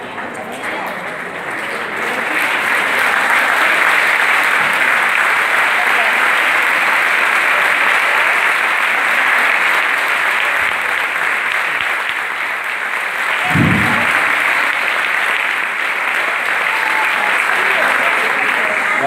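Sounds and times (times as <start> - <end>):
audience applauding: 0.6 - 19.0
dull low thump: 13.4 - 14.5.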